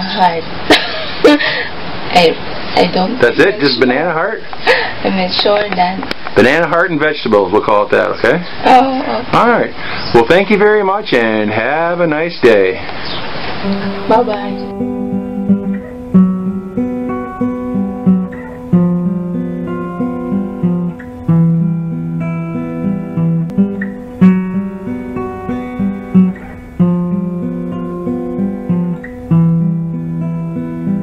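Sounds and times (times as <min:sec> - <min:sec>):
acoustic guitar playing: 0:00.0 - 0:31.0.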